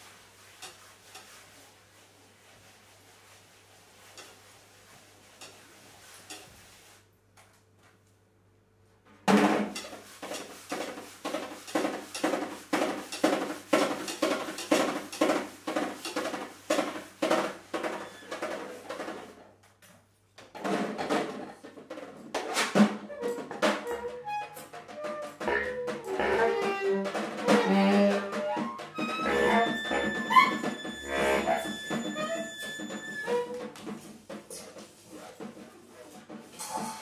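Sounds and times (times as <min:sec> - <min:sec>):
snare drum hits: 0:09.3 - 0:09.8.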